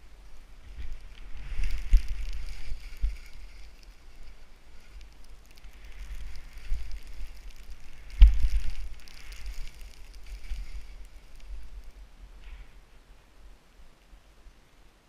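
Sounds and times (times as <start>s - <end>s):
skis hissing through powder snow: 0.0s - 12.0s
wind buffeting microphone: 0.0s - 12.1s.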